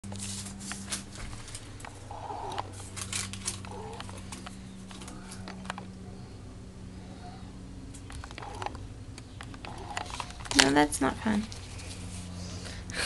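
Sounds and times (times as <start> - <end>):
low steady hum: 0.0 - 13.0
paper wrapper crackling: 2.6 - 5.8, 9.5 - 12.2.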